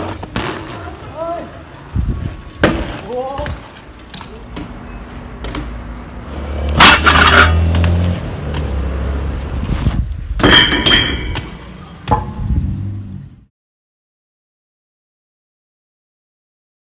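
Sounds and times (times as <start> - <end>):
bike riding on pavement: 0.0 - 10.6, 11.2 - 13.4
metal grate clanging rattle: 10.4 - 11.5.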